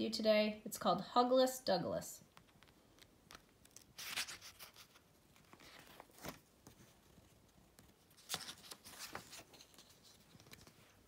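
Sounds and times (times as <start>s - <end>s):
book pages turning: 2.3s - 11.0s.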